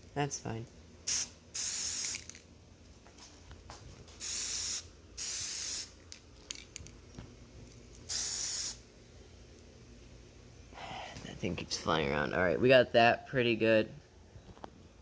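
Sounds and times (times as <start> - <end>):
spray paint can spraying: 1.1 - 2.4, 4.2 - 6.0, 8.1 - 8.8.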